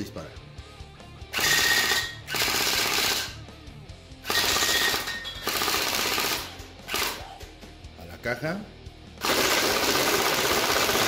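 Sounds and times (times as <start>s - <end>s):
toy gun firing full-auto rattle: 4.3s - 7.2s, 9.2s - 11.0s.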